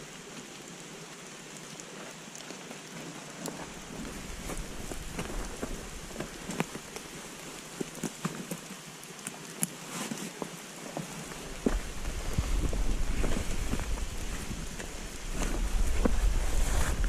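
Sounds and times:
nylon fabric rustling: 11.1s - 17.0s.

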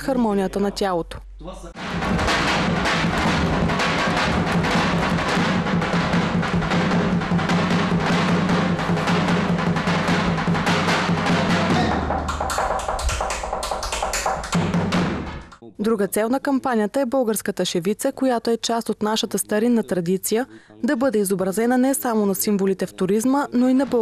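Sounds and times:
large drums beating: 1.8s - 15.6s, 23.6s - 24.0s.

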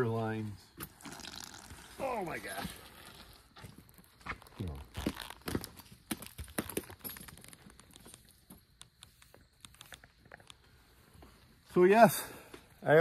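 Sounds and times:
horse tack clicks and knocks: 4.4s - 10.6s.

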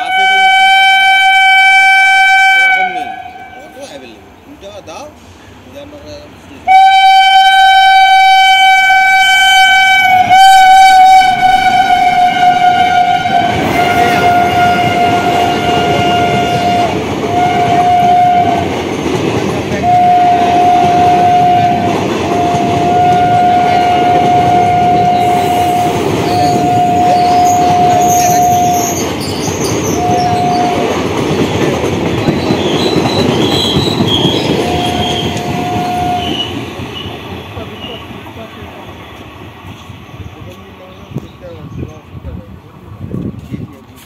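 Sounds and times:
train horn blasts: 0.0s - 3.8s, 6.6s - 18.8s, 19.8s - 29.1s, 29.8s - 31.0s, 33.5s - 37.1s
train rumble and wheel clatter: 0.0s - 44.0s.

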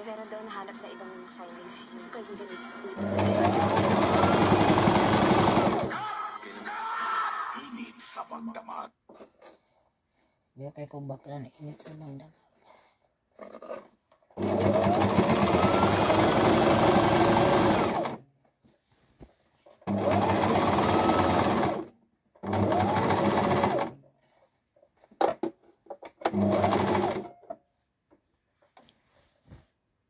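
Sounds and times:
sewing machine stitching: 3.0s - 6.0s, 13.4s - 18.2s, 19.7s - 24.0s, 26.0s - 27.4s.

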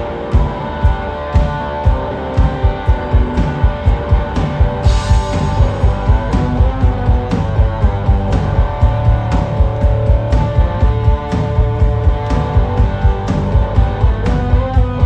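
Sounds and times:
bass guitar: 0.0s - 15.0s
drum kit beat: 0.0s - 15.0s
electric guitar: 0.0s - 15.0s.

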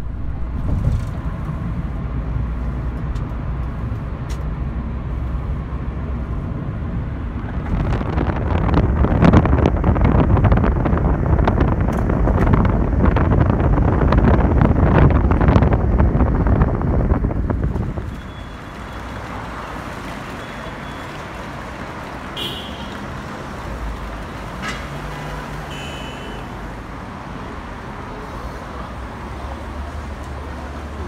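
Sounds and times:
wind noise on microphone: 0.0s - 2.5s, 6.4s - 25.8s
car road and engine rumble: 0.0s - 31.0s.

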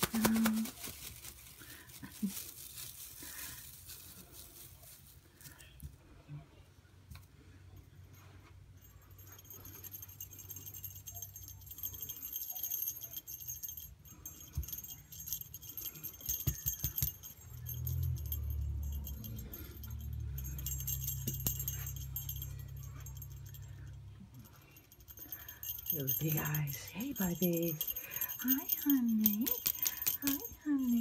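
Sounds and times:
small bell jingling: 0.0s - 5.7s, 8.0s - 31.0s
ribbon rustling: 0.0s - 5.8s.

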